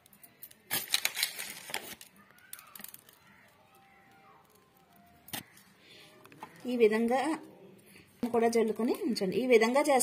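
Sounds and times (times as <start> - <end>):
sprinkles scattered on bread: 0.1 - 5.4.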